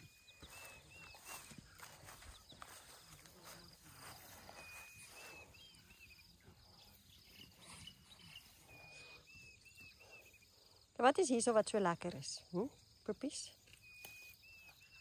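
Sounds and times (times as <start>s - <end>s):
rustling of grass: 0.0s - 10.0s.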